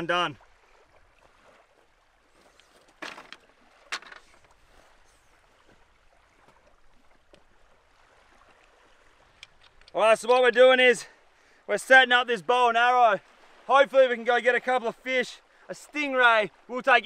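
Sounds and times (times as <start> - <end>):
surf: 0.0 - 17.0
wind: 0.0 - 17.0
dry sticks clattering onto a pile: 3.0 - 4.4.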